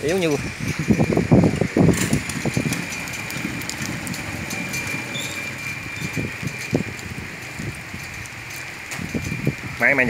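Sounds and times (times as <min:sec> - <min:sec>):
boat engine idling: 0:01.9 - 0:09.7.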